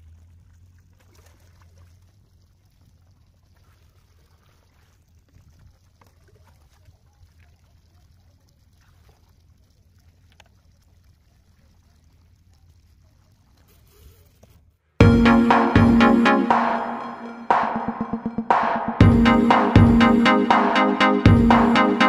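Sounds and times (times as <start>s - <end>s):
water pouring and splashing: 0.0s - 14.6s.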